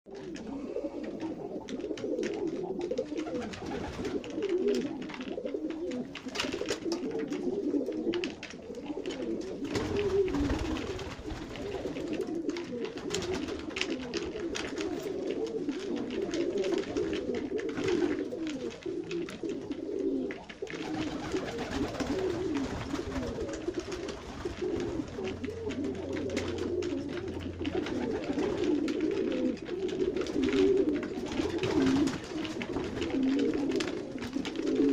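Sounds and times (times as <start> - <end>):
pigeons cooing: 0.1 - 34.9
beaks pecking on wooden trough: 0.2 - 34.9.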